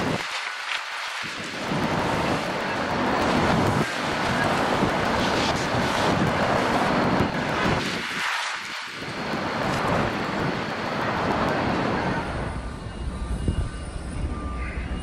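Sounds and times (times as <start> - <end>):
wind buffeting microphone: 0.0 - 0.4, 1.2 - 15.0
street traffic: 1.5 - 15.0.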